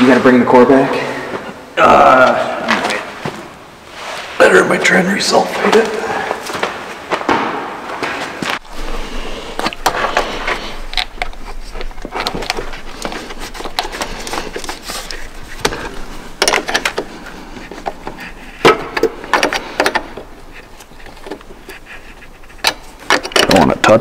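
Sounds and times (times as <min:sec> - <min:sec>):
metal clicks and knocks: 0:15.6 - 0:17.1, 0:17.7 - 0:20.3, 0:22.5 - 0:24.0.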